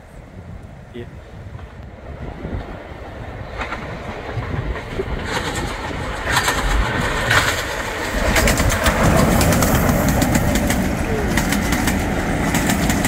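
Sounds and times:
wheels clattering on rail: 0:02.5 - 0:13.0
steam locomotive exhaust chuffs: 0:04.1 - 0:13.0.

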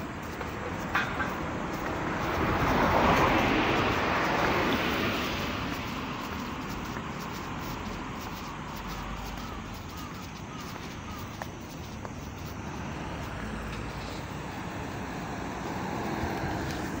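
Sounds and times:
road traffic hum: 0:00.0 - 0:17.0
wind noise on microphone: 0:00.0 - 0:17.0.

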